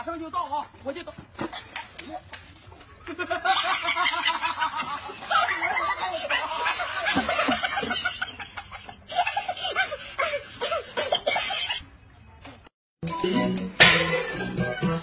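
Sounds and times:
people laughing: 2.8s - 11.8s.

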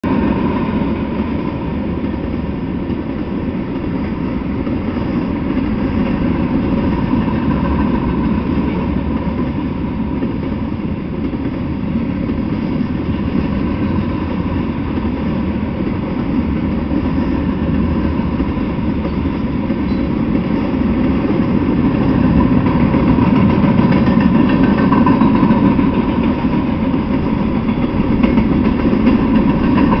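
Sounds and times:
train wheels on track: 0.0s - 30.0s.

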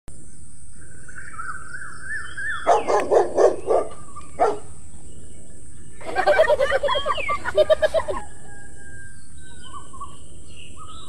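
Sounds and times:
bird chirping trill: 0.3s - 11.0s
dog barking: 2.6s - 4.7s
steady high hiss: 4.0s - 8.2s.

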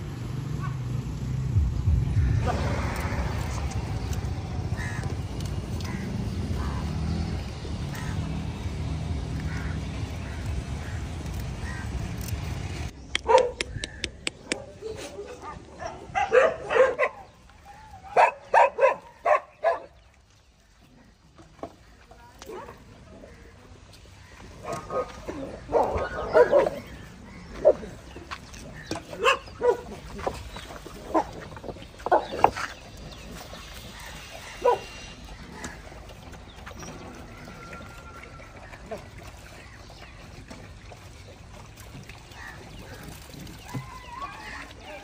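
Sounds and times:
dog barking: 13.2s - 13.6s, 15.4s - 17.3s, 18.2s - 19.9s, 25.7s - 26.8s, 29.2s - 29.9s, 34.6s - 34.9s.

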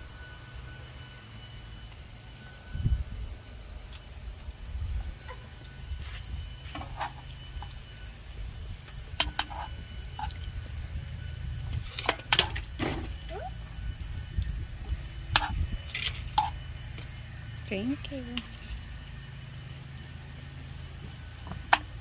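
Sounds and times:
metal tongs scraping a frying pan: 6.7s - 7.8s, 9.2s - 10.4s.

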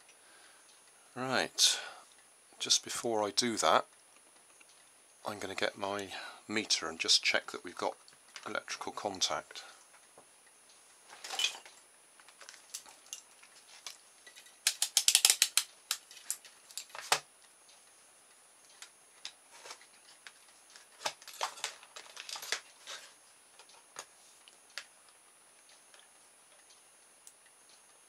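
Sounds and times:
plastic objects clicking on desk: 12.2s - 17.3s.

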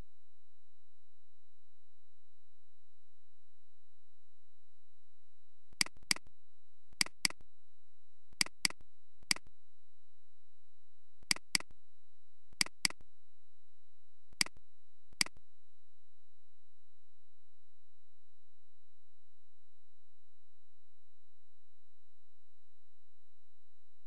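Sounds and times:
computer mouse clicking: 5.8s - 6.2s, 7.0s - 7.4s, 8.4s - 8.8s, 11.3s - 11.6s, 12.6s - 13.0s.

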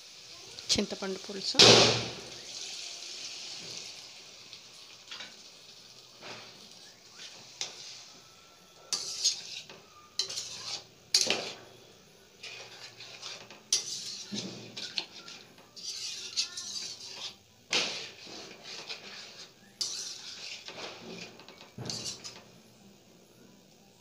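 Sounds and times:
metal ladle scraping a pan: 5.0s - 5.4s, 6.2s - 22.8s.

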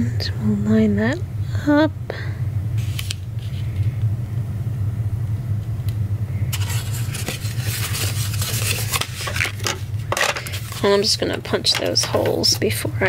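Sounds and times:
steady low hum: 0.0s - 13.0s
paper box rustling: 6.5s - 12.6s.

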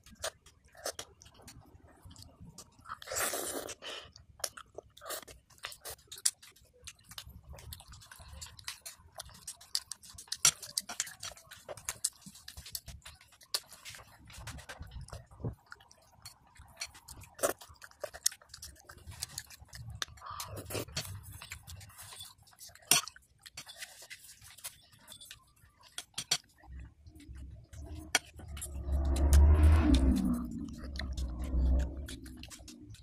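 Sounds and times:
child chewing: 0.0s - 33.0s
muffled low sound: 26.7s - 33.0s.

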